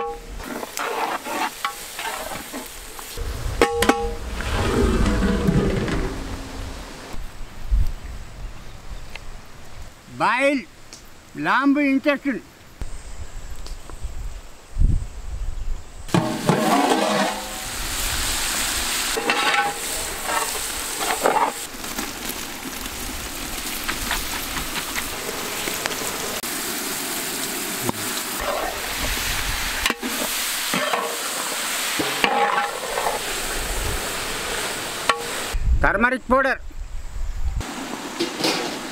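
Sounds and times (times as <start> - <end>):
stirring scraping in metal pot: 0.0 - 6.8, 16.2 - 17.7
food sizzling in hot oil: 16.1 - 35.6.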